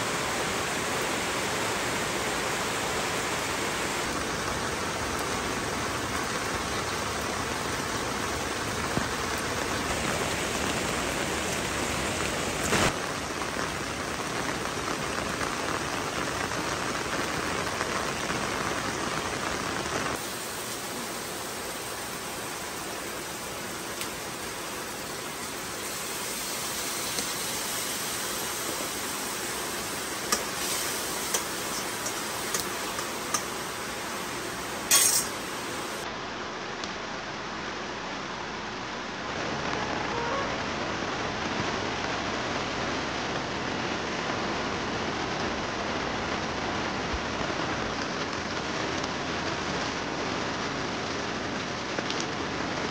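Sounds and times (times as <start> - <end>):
steady rain hiss: 0.0 - 52.9.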